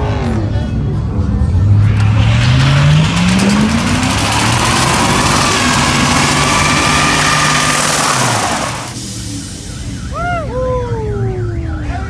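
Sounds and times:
engine revving high: 0:01.6 - 0:09.0
tires squealing on asphalt: 0:01.9 - 0:09.0.

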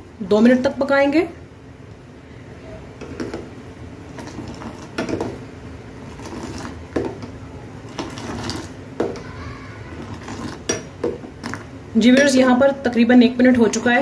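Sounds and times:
boiling liquid bubbling: 0:02.0 - 0:12.0, 0:12.7 - 0:14.0
tea pouring and splashing: 0:06.0 - 0:07.2, 0:07.8 - 0:08.8.

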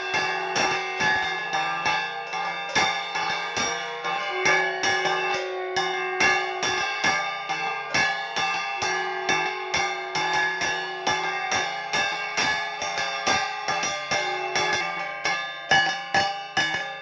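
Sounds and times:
bells struck rapidly: 0:00.0 - 0:17.0
cymbals struck: 0:00.0 - 0:17.0.

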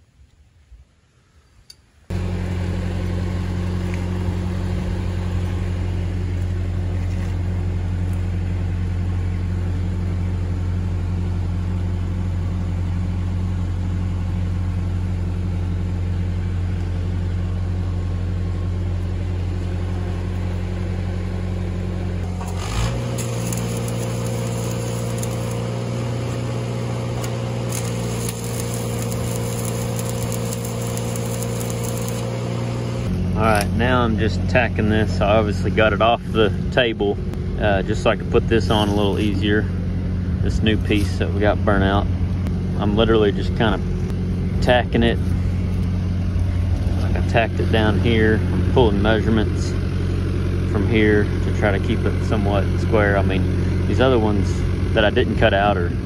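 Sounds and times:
welder engine running: 0:02.1 - 0:56.0
welding arc crackle: 0:22.2 - 0:33.1.

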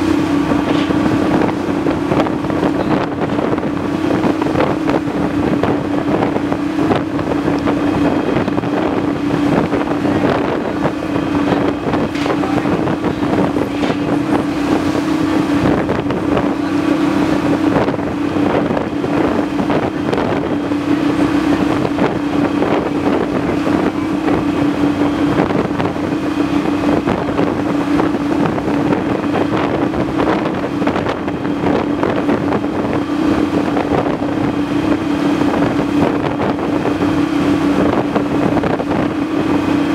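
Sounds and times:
boat engine drone: 0:00.0 - 0:39.9
waves splashing against hull: 0:00.0 - 0:39.9
wind on microphone: 0:00.0 - 0:39.9.

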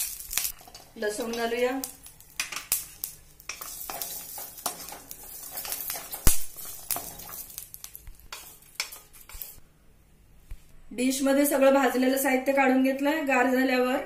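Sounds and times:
food frying in oil: 0:00.0 - 0:09.6
spatula scraping a metal pan: 0:03.4 - 0:09.6.

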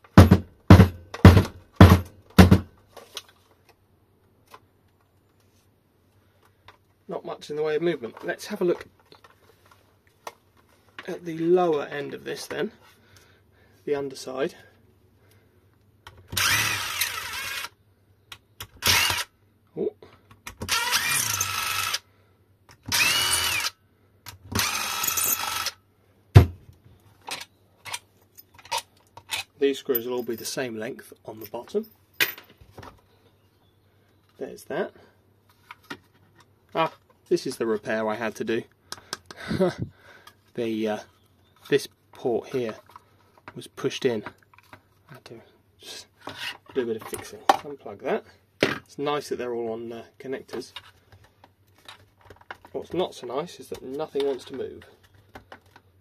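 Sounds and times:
battery case thunking on workbench: 0:00.2 - 0:02.7, 0:26.4 - 0:26.6
electric screwdriver whining: 0:16.3 - 0:17.7, 0:18.8 - 0:19.3, 0:20.6 - 0:22.0, 0:22.8 - 0:23.8, 0:24.5 - 0:25.8.

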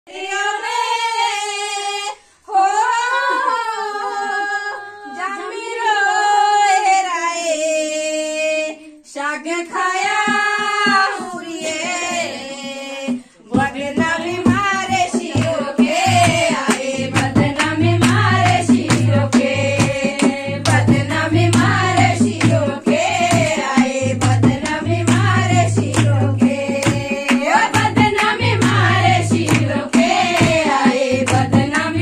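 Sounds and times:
woman singing unaccompanied: 0:00.1 - 0:32.0
low rhythmic beat: 0:13.6 - 0:32.0.

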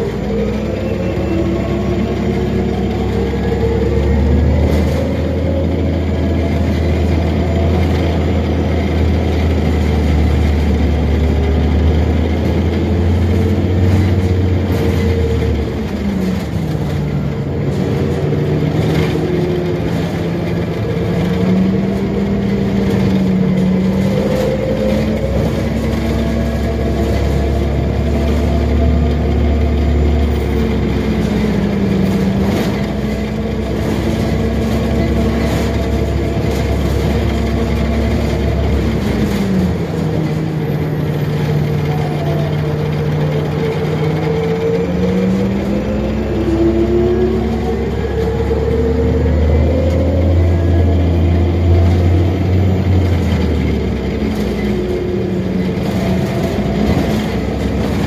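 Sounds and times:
bus drivetrain hum: 0:00.0 - 0:58.0.

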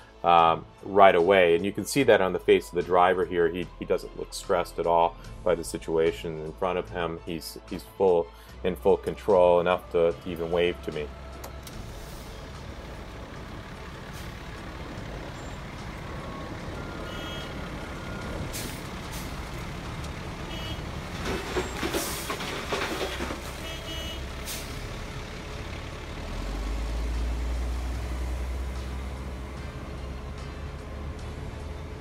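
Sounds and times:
deep truck engine rumble: 0:00.0 - 0:32.0
asphalt pouring into truck bed: 0:11.8 - 0:25.2
hissing and clatter: 0:21.1 - 0:23.6.

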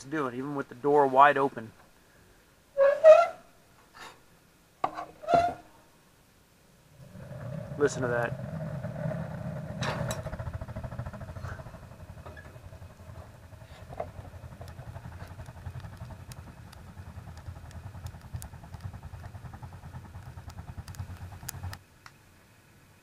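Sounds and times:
burning wood crackling: 0:06.9 - 0:22.2
fire drawing with fluttering rumble: 0:06.9 - 0:22.9.

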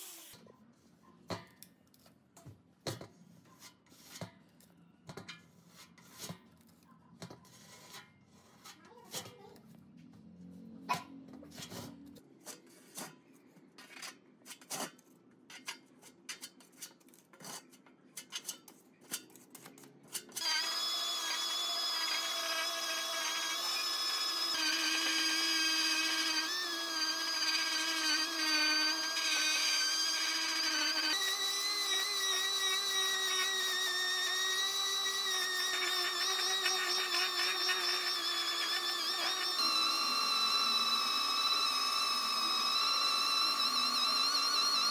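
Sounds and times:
orbital sander whining: 0:20.4 - 0:44.9.

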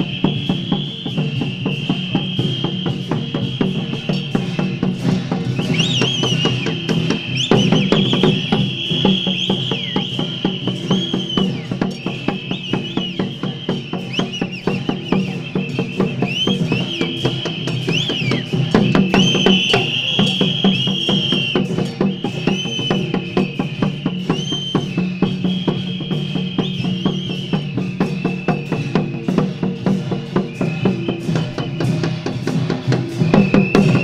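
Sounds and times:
drums gongs and cymbals beating: 0:00.0 - 0:34.0.

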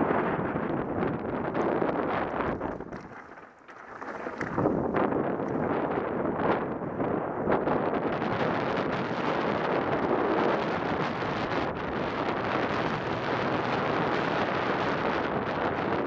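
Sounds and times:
wind rushing over microphone: 0:00.0 - 0:16.0
tyres rolling over gravel: 0:02.2 - 0:05.6.

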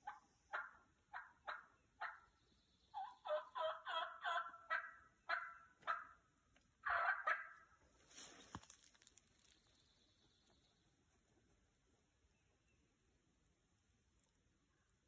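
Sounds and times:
turkey yelps: 0:00.0 - 0:02.3, 0:02.9 - 0:06.2, 0:06.8 - 0:07.7
short rustle: 0:08.0 - 0:09.7.

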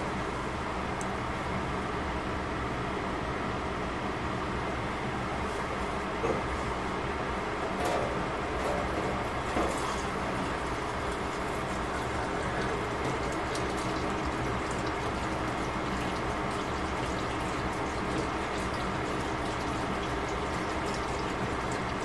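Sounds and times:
water simmering in covered pot: 0:07.6 - 0:22.0.

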